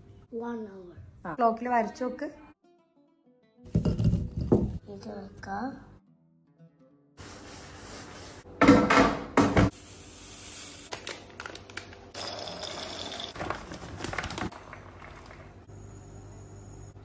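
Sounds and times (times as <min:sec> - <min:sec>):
jars knocking on countertop: 0:03.7 - 0:04.8.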